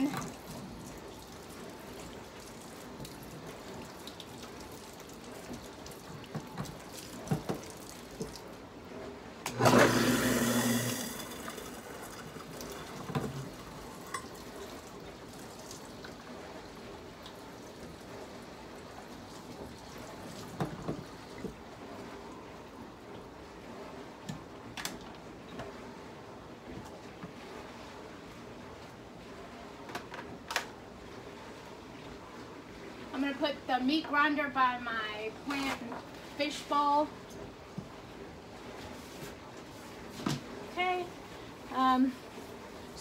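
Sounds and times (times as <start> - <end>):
tap water running into sink: 0.0 - 8.5, 9.5 - 16.2.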